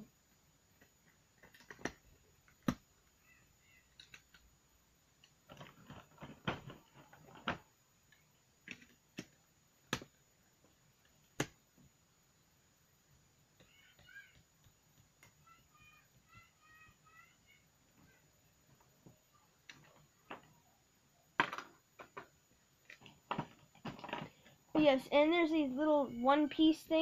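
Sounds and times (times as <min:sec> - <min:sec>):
plastic pieces clicking and tapping: 0:00.7 - 0:03.2, 0:03.9 - 0:04.5, 0:05.2 - 0:11.9, 0:19.6 - 0:20.6, 0:21.4 - 0:24.6.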